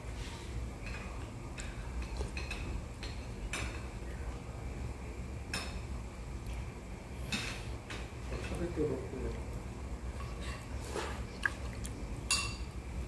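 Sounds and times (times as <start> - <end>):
low background hum: 0.0 - 13.0
metal utensils clinking on tableware: 12.3 - 12.7.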